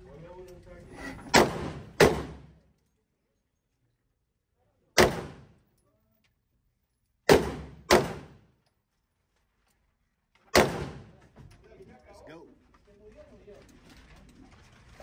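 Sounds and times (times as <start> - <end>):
echoing gunshots indoors: 1.3 - 2.6, 5.0 - 5.6, 7.2 - 8.6, 10.5 - 11.2.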